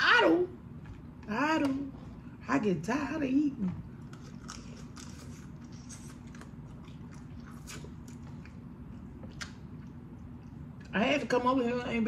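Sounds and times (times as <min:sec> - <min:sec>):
chewing and mouth noises: 0:04.0 - 0:11.0.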